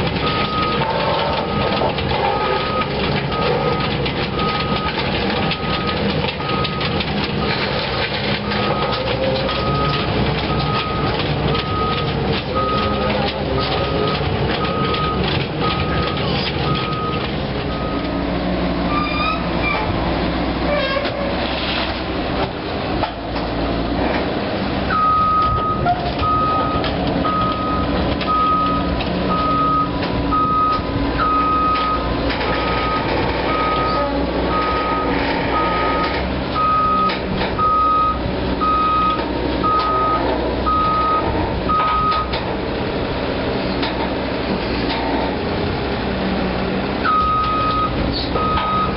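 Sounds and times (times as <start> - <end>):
diesel engine running: 0.0 - 48.9
travel alarm beeping: 8.4 - 18.0, 25.0 - 32.1, 32.8 - 42.4, 47.1 - 48.9.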